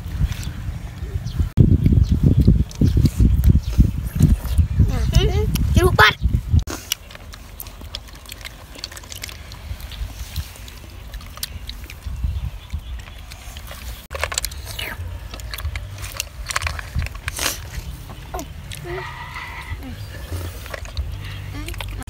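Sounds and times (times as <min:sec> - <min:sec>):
steady low rumble: 0:00.0 - 0:22.0
slurping: 0:06.7 - 0:22.0.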